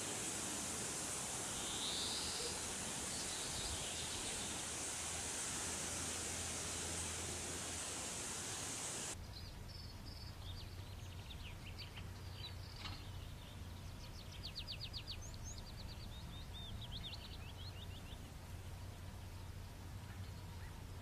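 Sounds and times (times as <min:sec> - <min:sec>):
steady low hum: 0:00.0 - 0:09.4
songbird chirping and trilling: 0:00.0 - 0:18.3.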